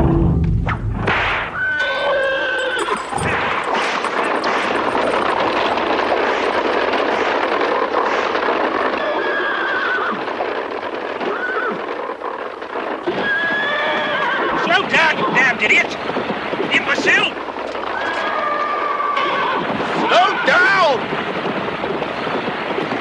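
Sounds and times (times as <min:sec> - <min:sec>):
dense continuous clatter: 0:00.9 - 0:23.0
horses whinnying: 0:01.6 - 0:16.2, 0:17.6 - 0:21.0.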